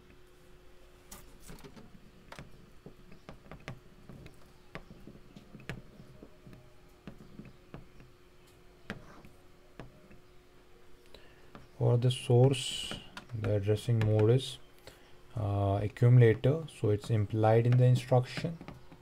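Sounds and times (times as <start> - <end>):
faint steady hum: 0.0 - 19.0
stylus tapping on tablet screen: 12.4 - 14.4.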